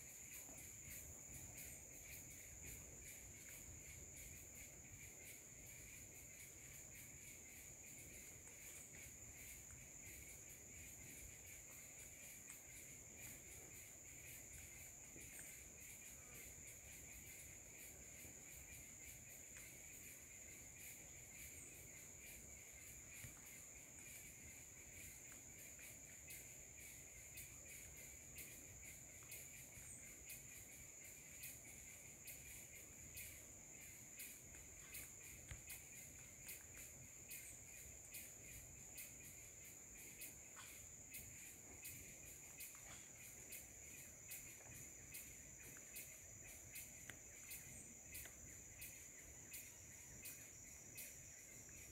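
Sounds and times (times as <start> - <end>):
insect chorus trilling: 0.0 - 51.9
faint ticks: 33.1 - 38.3, 40.2 - 43.7, 44.3 - 51.9.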